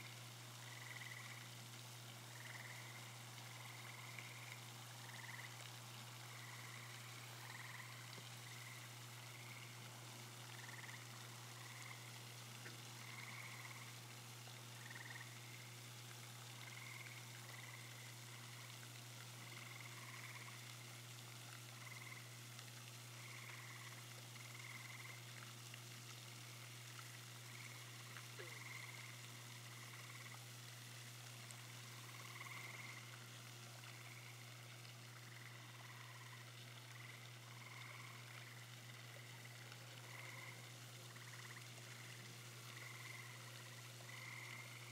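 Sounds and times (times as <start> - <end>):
frog calls: 0.0 - 1.6, 2.3 - 9.8, 10.4 - 14.0, 14.8 - 15.7, 16.6 - 18.1, 19.4 - 20.7, 21.7 - 22.3, 23.2 - 25.3, 27.0 - 30.4, 31.9 - 33.2, 33.9 - 34.5, 35.1 - 44.9.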